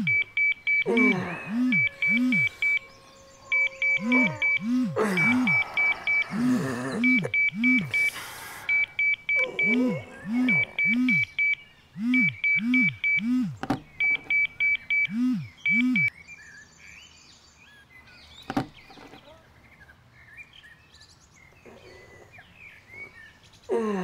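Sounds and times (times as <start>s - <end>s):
electronic alarm beeping: 0.0s - 16.1s
faint birds chirping: 0.0s - 24.0s.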